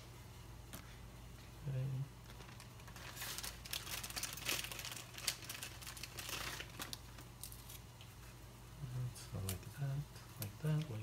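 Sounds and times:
plastic bag crinkling: 0:02.3 - 0:07.8.

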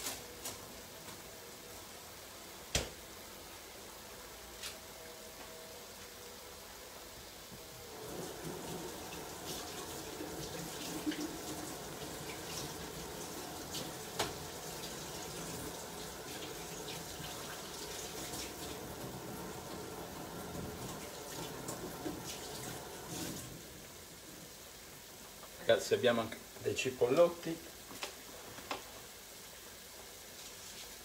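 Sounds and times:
tap water running into sink: 0:08.0 - 0:23.5.

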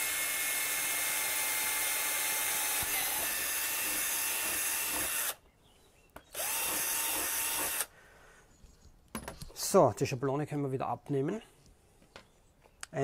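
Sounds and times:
cordless drill boring plastic: 0:00.0 - 0:05.4, 0:06.3 - 0:07.9.

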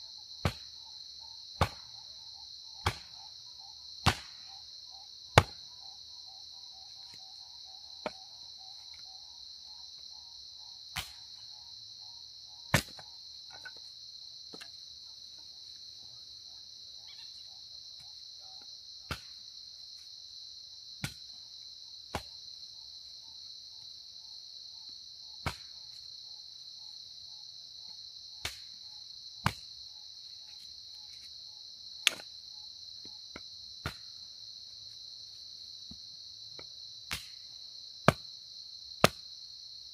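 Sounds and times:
crickets chirring: 0:00.0 - 0:39.9
axe chopping firewood: 0:00.4 - 0:00.7, 0:01.6 - 0:02.0, 0:02.8 - 0:03.2, 0:04.0 - 0:04.4, 0:05.3 - 0:05.7, 0:08.0 - 0:08.2, 0:11.0 - 0:11.3, 0:12.7 - 0:13.8, 0:19.0 - 0:19.4, 0:21.0 - 0:21.4, 0:22.1 - 0:22.3, 0:25.4 - 0:25.7, 0:28.4 - 0:28.7, 0:29.4 - 0:29.6, 0:32.0 - 0:32.3, 0:33.0 - 0:34.1, 0:36.6 - 0:37.4, 0:38.0 - 0:38.3, 0:39.0 - 0:39.3.

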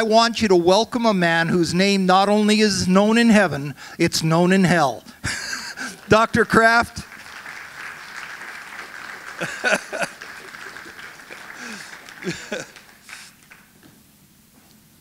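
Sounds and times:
congregation applauding: 0:05.2 - 0:13.9.

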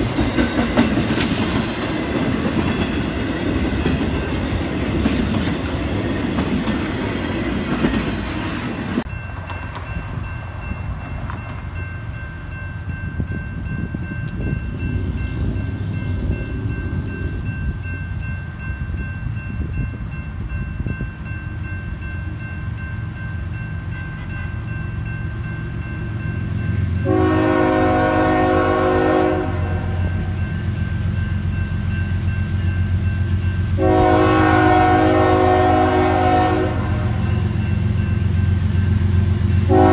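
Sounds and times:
crossing warning bell ringing: 0:00.0 - 0:39.9
freight train rumbling and clattering: 0:00.0 - 0:39.9
locomotive horn blasts: 0:27.0 - 0:30.3, 0:33.8 - 0:37.4, 0:39.6 - 0:39.9.

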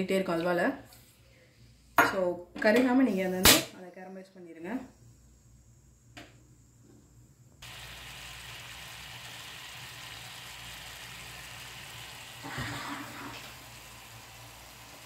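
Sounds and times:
sugar bubbling and sizzling: 0:07.6 - 0:15.0.

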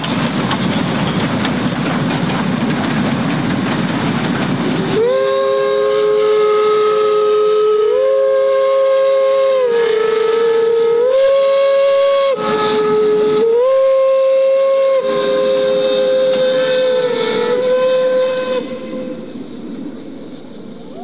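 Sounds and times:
rush of steam: 0:00.0 - 0:21.0
low steam whistle: 0:04.8 - 0:21.0
high steam whistle blasts: 0:04.9 - 0:21.0.

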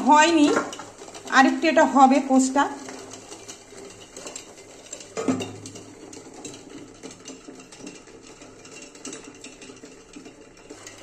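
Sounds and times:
water boiling: 0:00.0 - 0:11.0
metal lid clanking on pot: 0:02.8 - 0:11.0.

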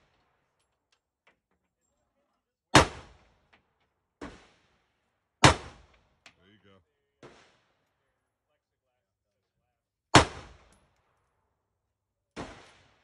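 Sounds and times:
faint gunshot: 0:02.8 - 0:03.3, 0:05.4 - 0:06.2, 0:10.2 - 0:10.8, 0:12.4 - 0:13.0
loud gunshots with echo: 0:05.4 - 0:05.9, 0:10.2 - 0:10.7, 0:12.4 - 0:13.0.

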